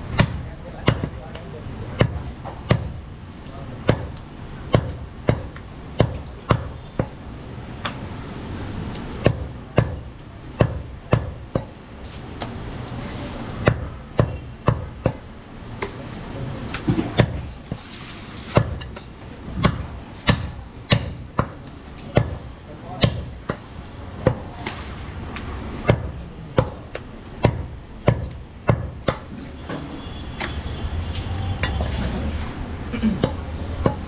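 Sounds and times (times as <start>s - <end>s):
cleaver chopping meat on wood: 0.1s - 1.4s, 2.0s - 3.0s, 3.8s - 7.2s, 9.2s - 11.8s, 13.6s - 15.2s, 16.7s - 17.8s, 18.6s - 24.8s, 25.8s - 29.8s, 33.2s - 34.0s.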